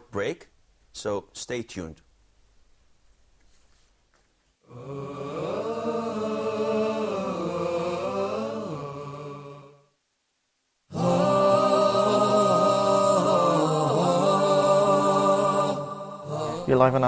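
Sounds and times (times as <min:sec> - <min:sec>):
vocal chant gliding pitch: 0:04.7 - 0:09.9, 0:10.9 - 0:17.0.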